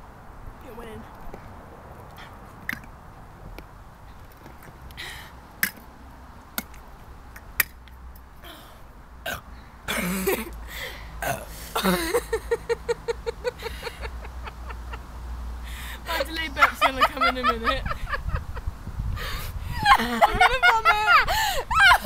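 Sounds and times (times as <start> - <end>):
person burping: 9.2 - 10.5, 11.2 - 12.2
person giggling: 11.8 - 15.0, 16.7 - 18.6, 19.3 - 22.0.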